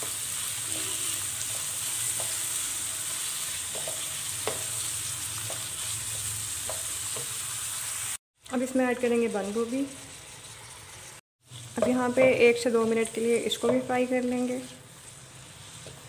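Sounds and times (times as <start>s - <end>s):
vegetables sizzling in hot oil: 0.0s - 16.0s
wooden spatula knocking on pan: 3.7s - 4.7s.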